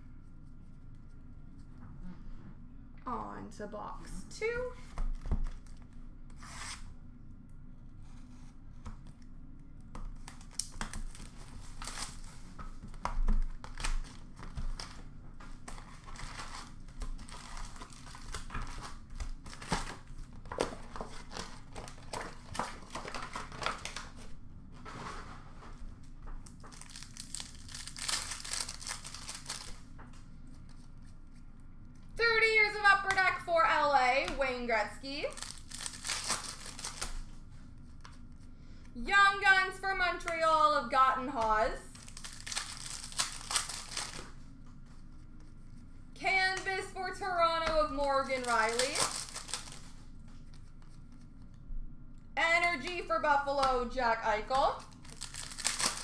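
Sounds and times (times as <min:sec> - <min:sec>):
wrapper crinkling and tearing: 0:10.2 - 0:12.5, 0:13.2 - 0:24.3, 0:26.4 - 0:29.9, 0:35.2 - 0:37.3, 0:41.9 - 0:44.5, 0:48.1 - 0:50.7, 0:54.7 - 0:56.0.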